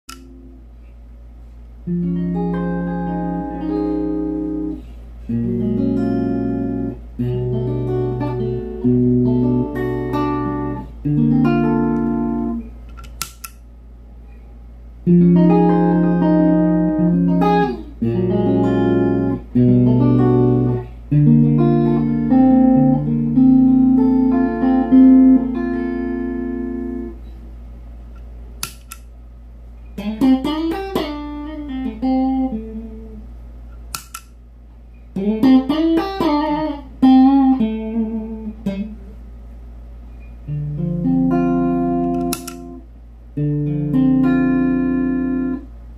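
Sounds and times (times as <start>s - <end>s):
low amp hum: 0.0s - 45.9s
electric guitar chords and licks: 1.8s - 12.7s, 15.0s - 27.2s, 30.0s - 33.2s, 35.2s - 39.1s, 40.4s - 42.8s, 43.4s - 45.7s
sharp clicks: 12.9s - 13.6s, 28.2s - 29.1s, 33.9s - 34.4s, 42.1s - 42.7s.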